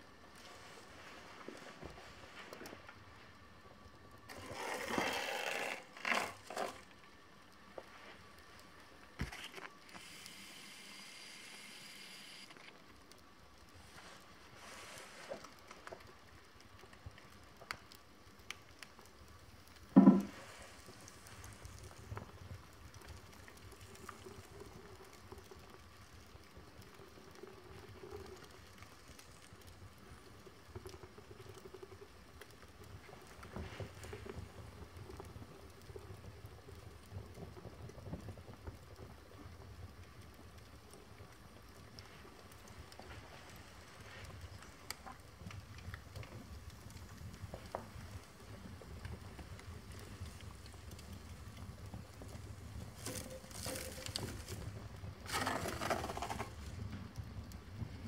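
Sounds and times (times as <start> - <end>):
paper burning crackling: 0.0 - 58.0
small ticks and pops: 6.8 - 14.4, 15.1 - 58.0.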